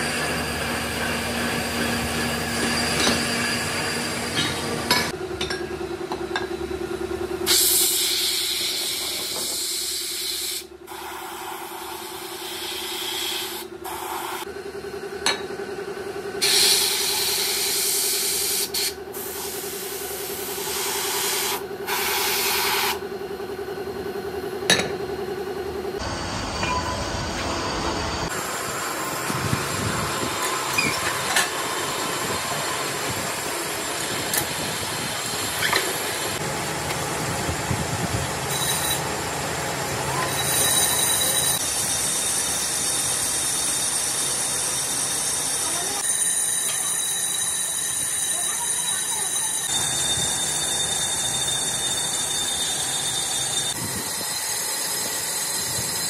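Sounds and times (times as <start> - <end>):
metal lathe machining: 0.0 - 6.5, 25.9 - 56.0.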